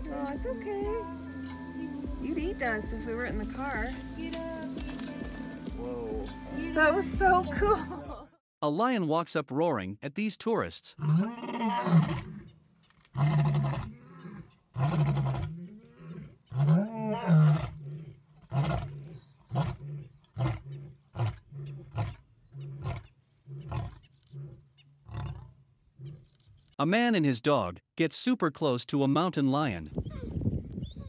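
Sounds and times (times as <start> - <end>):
lion grunting roars: 11.0 - 12.5, 13.2 - 26.3
lion roaring: 11.0 - 26.4.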